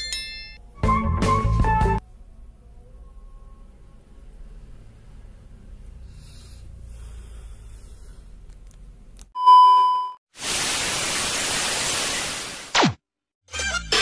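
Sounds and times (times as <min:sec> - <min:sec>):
high test-pattern beep: 0:09.4 - 0:10.2
tv static hiss: 0:10.4 - 0:12.8.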